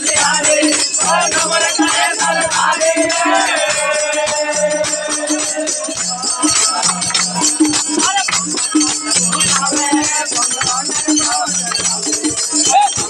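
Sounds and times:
group of men singing: 0.0 - 13.0
rapid rhythmic clapping: 0.0 - 13.0
rattling percussion: 0.0 - 13.0.

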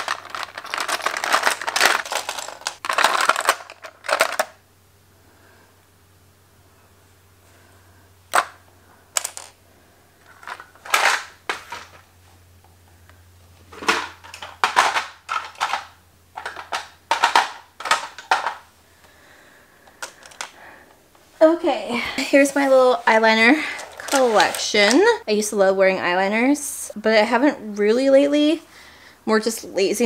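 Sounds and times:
plastic makeup items clattering: 0.0 - 4.6, 9.2 - 9.6, 10.2 - 12.1, 13.7 - 18.7, 19.9 - 20.6, 23.5 - 25.2.

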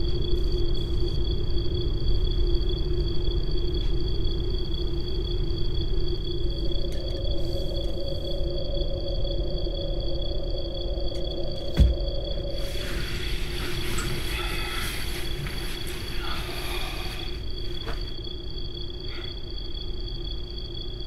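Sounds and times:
low rumbling drone: 4.4 - 17.8
low thump: 11.7 - 12.2
steady high-pitched tones: 12.1 - 17.6.

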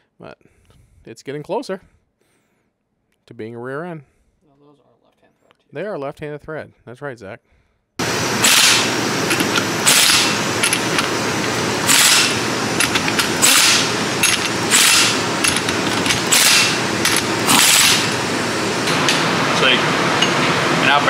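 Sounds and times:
pneumatic impact wrench bursts: 8.0 - 19.2
steady mechanical noise: 8.0 - 21.0.

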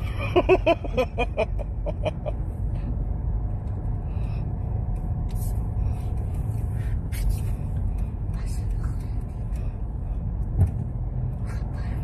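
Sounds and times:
car road and engine hum: 0.0 - 12.0.

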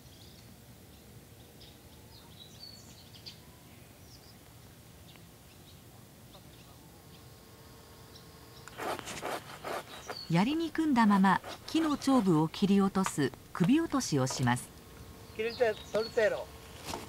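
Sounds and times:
faint bird chirps: 0.0 - 4.4, 9.8 - 10.8
short whistled calls: 9.7 - 10.4.

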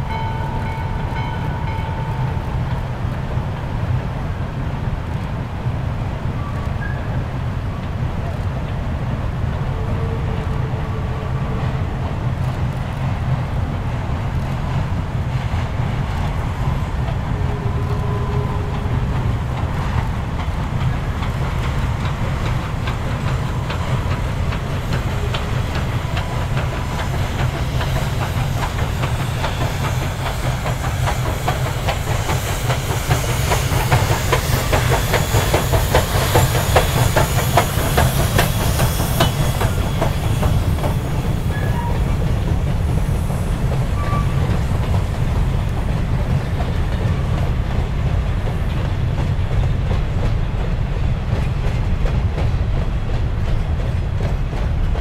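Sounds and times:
steam locomotive rumbling: 0.0 - 55.0
wheels clicking over rail joints: 14.2 - 55.0
hiss of steam: 15.0 - 49.3.

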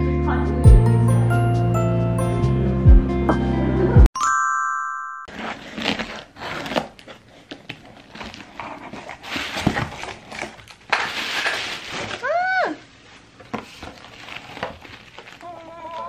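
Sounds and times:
box cutter scratching through tape: 5.3 - 7.4
cardboard flaps opening: 5.3 - 12.2
plastic bag rustling: 5.3 - 12.4, 13.0 - 16.0.

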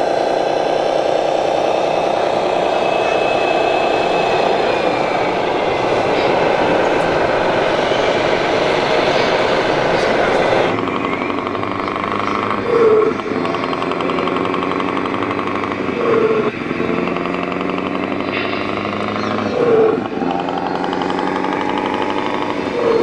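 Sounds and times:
model truck engine drone: 0.0 - 23.0.

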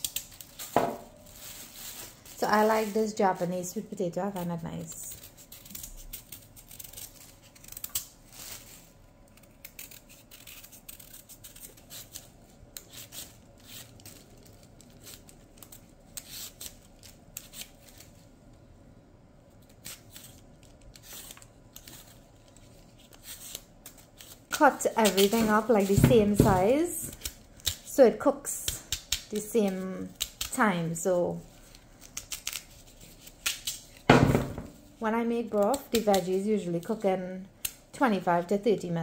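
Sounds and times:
knife scraping peel: 4.8 - 18.1, 19.7 - 27.9, 31.6 - 34.1.

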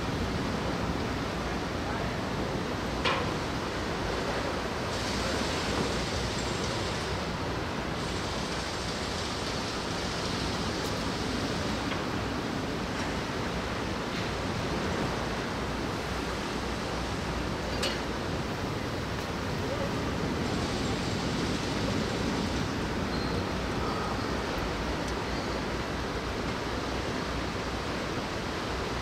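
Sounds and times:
rain: 0.0 - 29.0
wind: 0.0 - 29.0.

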